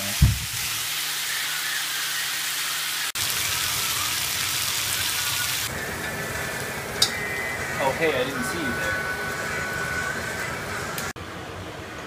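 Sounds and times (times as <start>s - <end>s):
meat and onion sizzling in pan: 0.0s - 11.0s
low thump: 0.2s - 0.5s.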